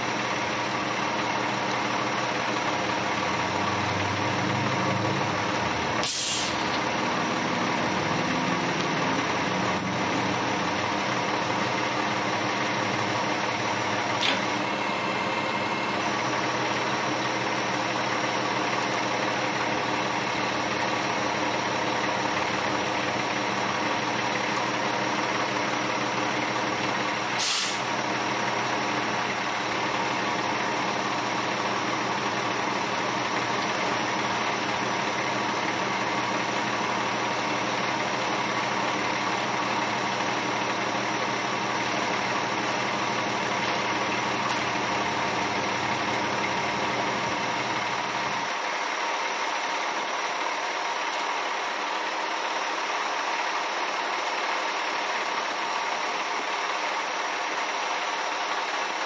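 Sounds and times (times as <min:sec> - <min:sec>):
diesel truck engine running: 0:00.0 - 0:59.0
short hisses of air: 0:06.0 - 0:06.6, 0:27.4 - 0:27.9.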